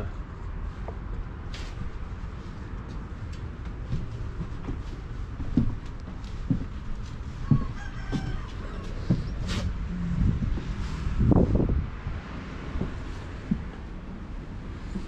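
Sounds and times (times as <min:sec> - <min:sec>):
low thumps and knocks: 0:03.5 - 0:15.0
rooster crowing: 0:07.4 - 0:09.7.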